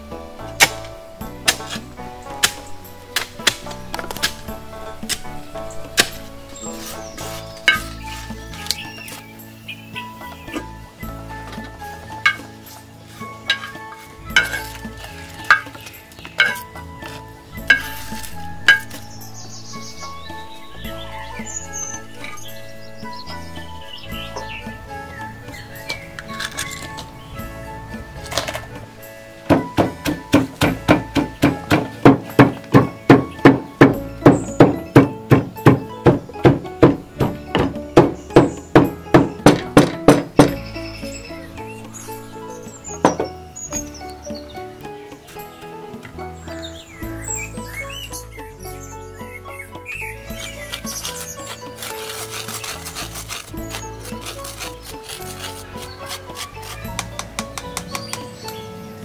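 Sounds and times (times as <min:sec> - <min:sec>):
soft instrumental music: 0:00.0 - 0:59.0
spoon scraping clay pan: 0:11.4 - 0:44.0, 0:50.0 - 0:58.6
pestle pounding in wooden mortar: 0:13.4 - 0:28.6, 0:29.4 - 0:41.1, 0:42.7 - 0:44.0, 0:50.2 - 0:58.5.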